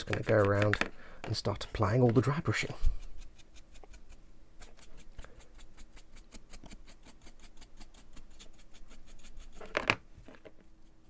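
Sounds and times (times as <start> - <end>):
paintbrush scratching on plastic: 2.2 - 9.9.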